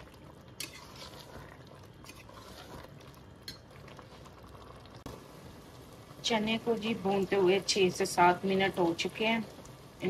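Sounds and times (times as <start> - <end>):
spoon scraping metal pot: 0.6 - 3.7.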